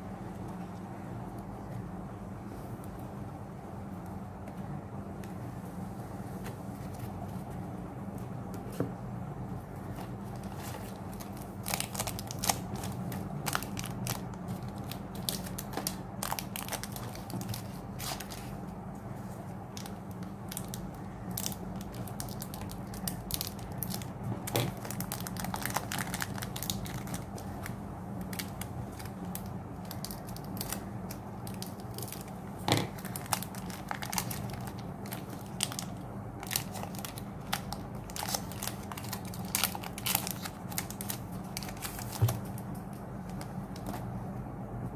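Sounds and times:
steady low hum: 0:00.0 - 0:44.9
foil wrappers crinkling: 0:10.2 - 0:18.6, 0:19.7 - 0:44.0.

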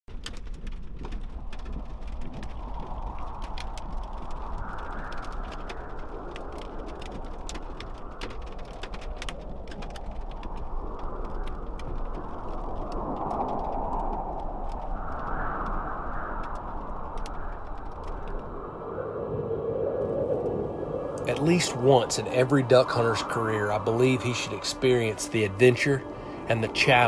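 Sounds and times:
raindrops ticking on a car: 0:00.1 - 0:13.5
low road rumble: 0:00.1 - 0:27.0.

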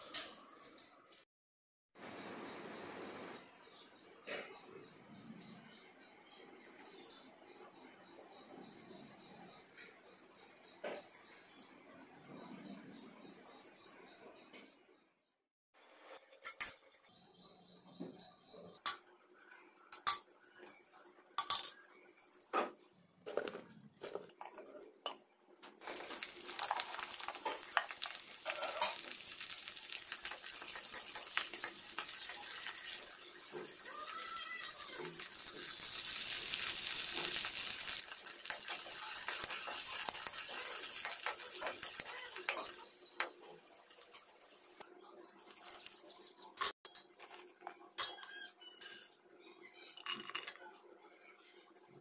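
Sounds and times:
food sizzling in hot oil: 0:25.8 - 0:44.8.

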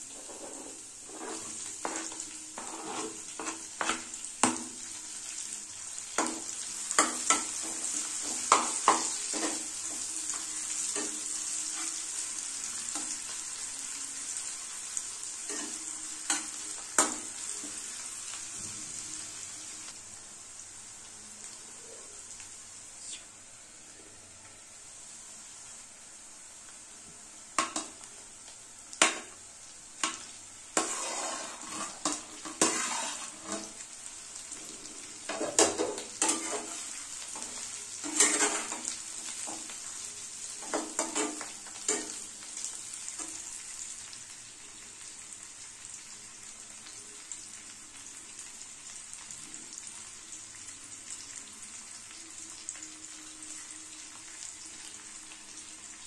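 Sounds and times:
food sizzling in a pan: 0:00.0 - 0:56.0
steel utensils scraping pan: 0:00.1 - 0:04.0, 0:30.8 - 0:33.7, 0:38.1 - 0:38.8.

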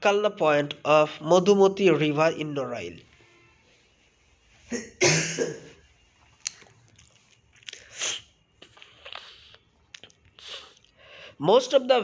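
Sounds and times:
man's lip and tongue clicks: 0:06.4 - 0:07.9, 0:08.6 - 0:11.0
man breathing in: 0:10.4 - 0:11.4.

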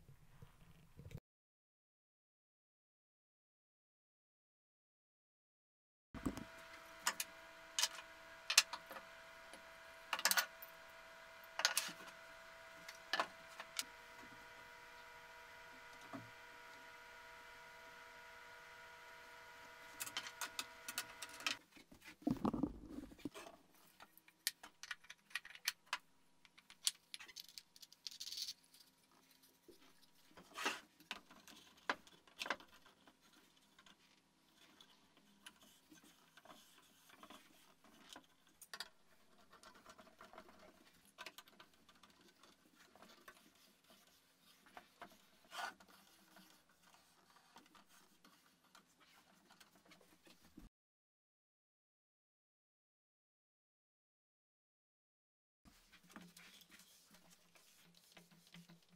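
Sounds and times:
wooden arm creaking at joints: 0:22.2 - 0:23.4.

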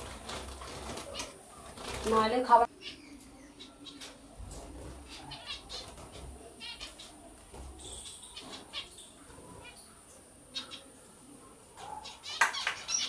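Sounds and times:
wings fluttering: 0:00.0 - 0:02.6.

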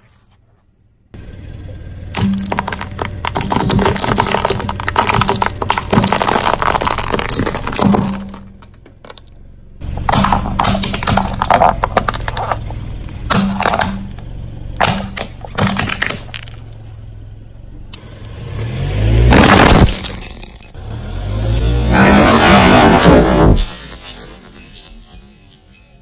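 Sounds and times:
car engine humming: 0:00.3 - 0:24.7
car engine revving: 0:01.2 - 0:24.3
tyre crushing brittle objects: 0:02.2 - 0:09.3, 0:09.9 - 0:16.6, 0:19.3 - 0:20.8.

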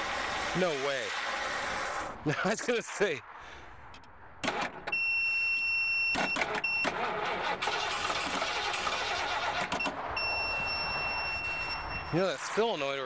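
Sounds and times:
high warning tone: 0:04.9 - 0:07.0, 0:09.8 - 0:13.0
starter cranking engine: 0:06.2 - 0:10.0.

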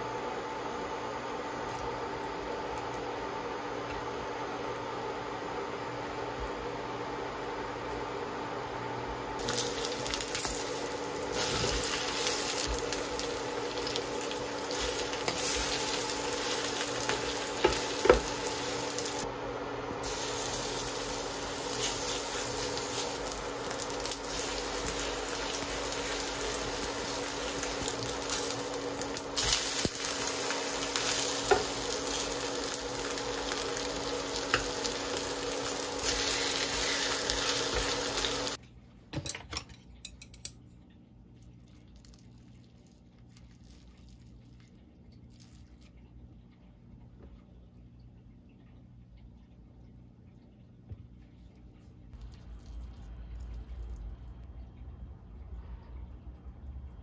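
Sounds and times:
batter sizzling in frying pan: 0:09.3 - 0:38.6.

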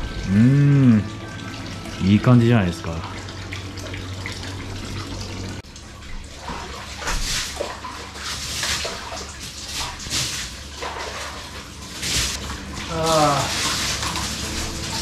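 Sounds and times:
faint water trickle: 0:00.0 - 0:10.0
water splashing in a bath: 0:00.0 - 0:15.0.

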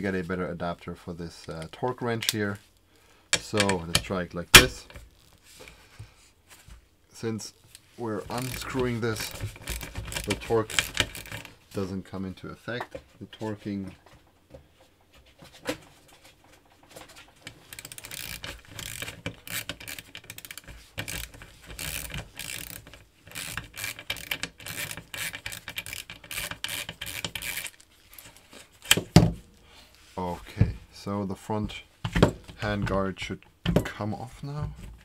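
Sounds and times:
ratchet clicking: 0:08.3 - 0:11.5, 0:17.6 - 0:27.8.

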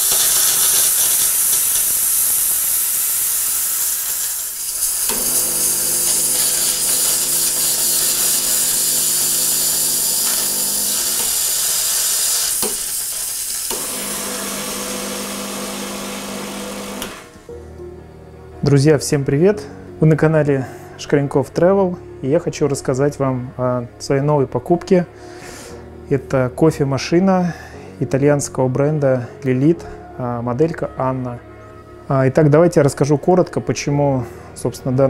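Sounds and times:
espresso machine hissing: 0:00.0 - 0:17.4
motor hum: 0:13.7 - 0:17.4.

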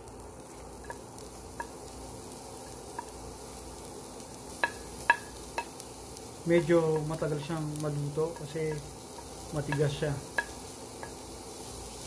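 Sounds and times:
rice sizzling in a pan: 0:00.0 - 0:12.0.

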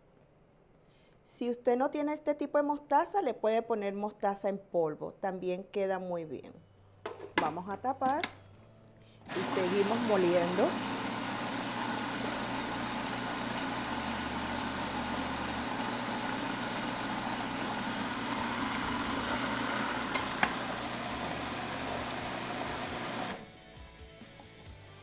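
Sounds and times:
food processor motor grinding: 0:09.3 - 0:23.5.

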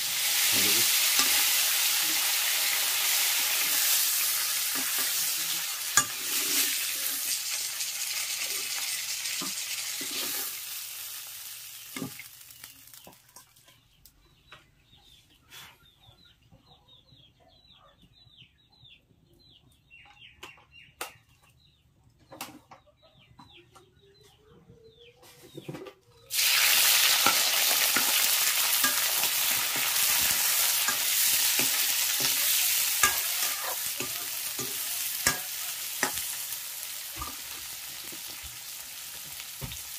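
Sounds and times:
hot oil sizzling in a wok: 0:00.0 - 0:13.3, 0:26.3 - 0:39.9
metal ladle scraping and clinking: 0:06.0 - 0:07.3
faint chicken calls: 0:11.8 - 0:26.6.

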